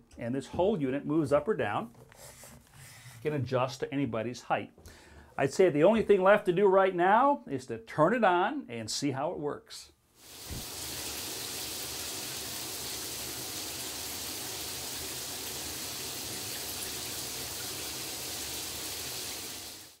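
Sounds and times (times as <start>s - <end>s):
shower water spraying on tiles: 10.2s - 20.0s.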